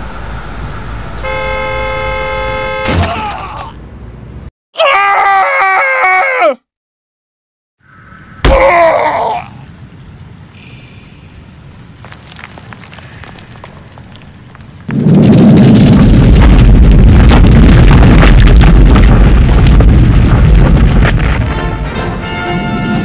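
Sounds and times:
boulder rolling low rumble: 11.6s - 21.6s
faint crackling: 11.7s - 16.0s.

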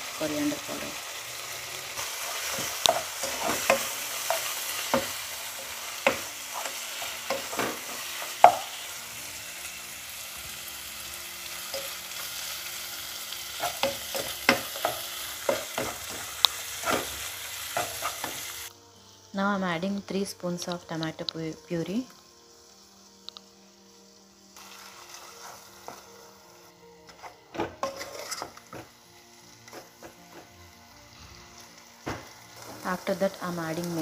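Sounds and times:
meat sizzling in hot oil: 0.0s - 34.0s
spatula scraping a pan: 1.9s - 8.6s, 24.6s - 26.1s, 27.1s - 29.0s.

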